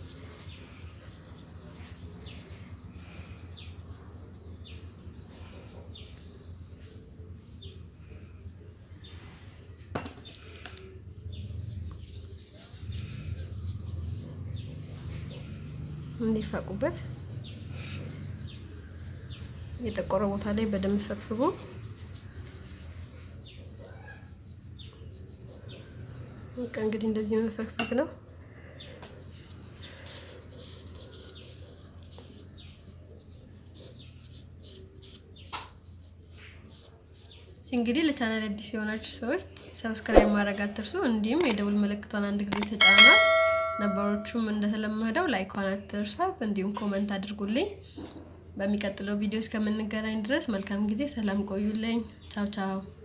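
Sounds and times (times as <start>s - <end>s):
toothbrush scrubbing teeth: 10.3s - 26.2s.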